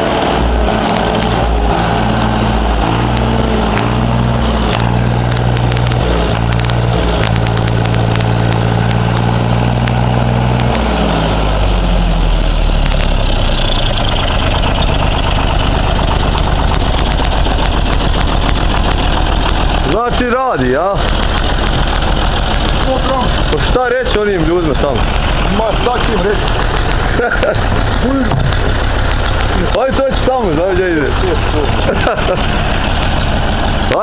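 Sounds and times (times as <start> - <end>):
tractor diesel engine running: 0.0 - 34.0.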